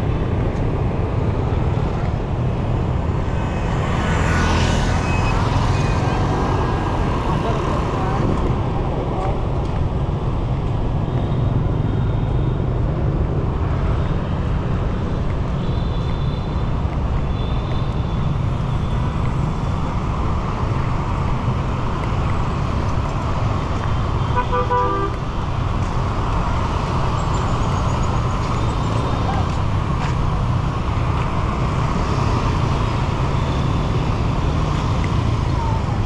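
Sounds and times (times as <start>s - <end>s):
traffic rumble: 0.0s - 36.0s
car horn toot: 24.3s - 25.2s.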